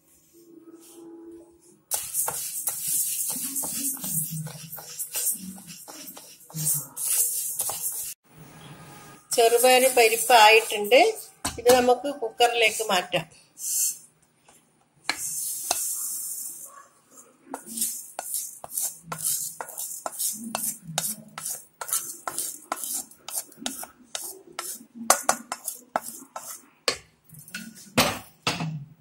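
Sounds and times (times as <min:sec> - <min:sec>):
wooden spatula tapping and scraping: 0:01.9 - 0:08.2, 0:11.4 - 0:12.0, 0:14.4 - 0:16.0, 0:17.5 - 0:27.9.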